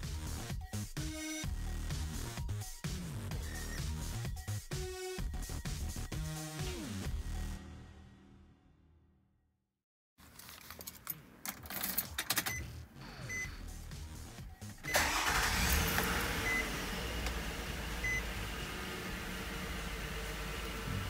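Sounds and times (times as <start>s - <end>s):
car engine starting and idling: 14.6s - 21.0s
clicks: 17.2s - 17.4s.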